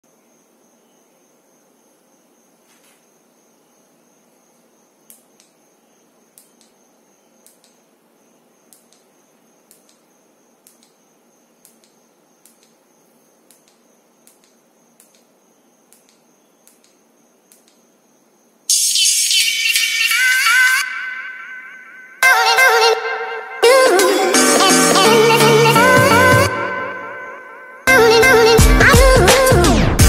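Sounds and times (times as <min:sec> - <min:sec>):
faint steady high tone: 0:17.9 - 0:24.4
music: 0:18.7 - 0:30.0.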